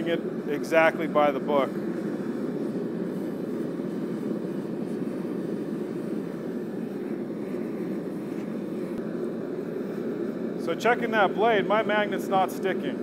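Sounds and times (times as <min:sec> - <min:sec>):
gas forge rushing: 0:00.0 - 0:13.0.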